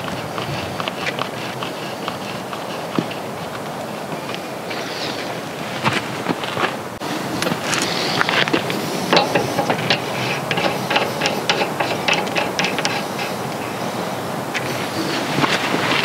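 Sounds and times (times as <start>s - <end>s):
metallic clicks and scrapes of threads: 7.4s - 14.8s.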